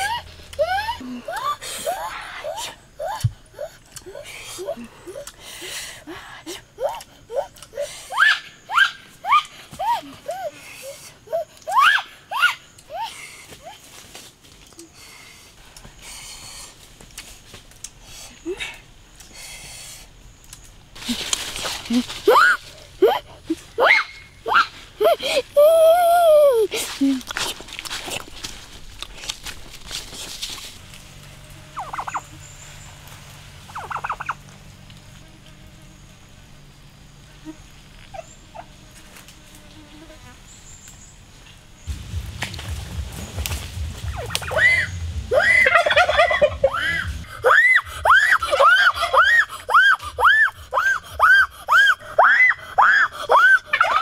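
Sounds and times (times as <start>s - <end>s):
turkey gobbling: 31.8s - 32.4s, 33.7s - 34.4s, 44.1s - 50.9s.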